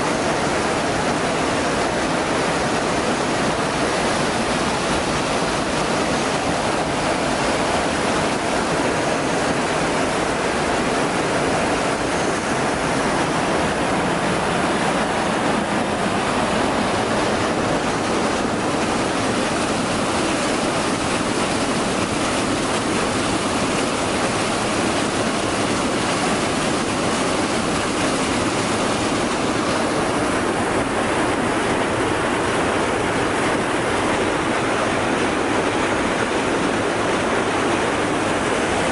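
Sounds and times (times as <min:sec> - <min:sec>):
water pouring over a weir: 0:00.1 - 0:38.9.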